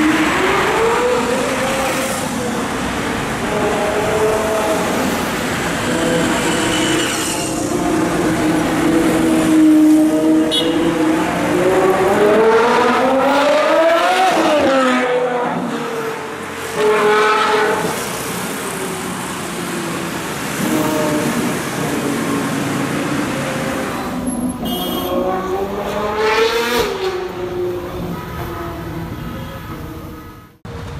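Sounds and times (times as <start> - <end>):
car engine revving: 0.0 - 24.2.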